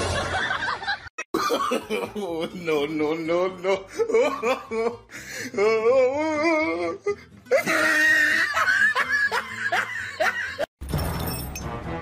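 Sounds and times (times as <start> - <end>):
person giggling: 1.4 - 5.0, 7.5 - 10.7.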